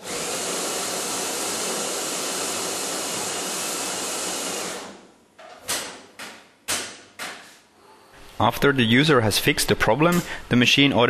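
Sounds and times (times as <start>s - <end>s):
coffee grinder running: 0.0s - 5.1s.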